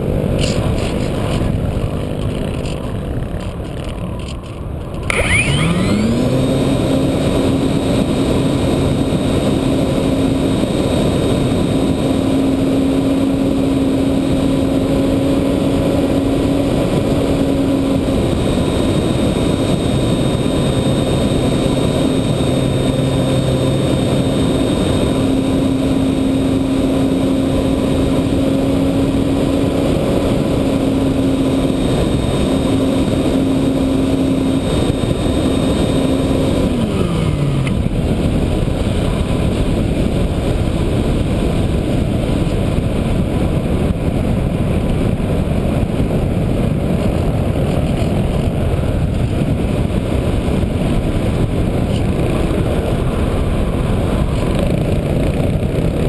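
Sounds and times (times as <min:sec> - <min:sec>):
electric motor whine: 0:00.0 - 0:44.0
wind rush: 0:00.0 - 0:56.0.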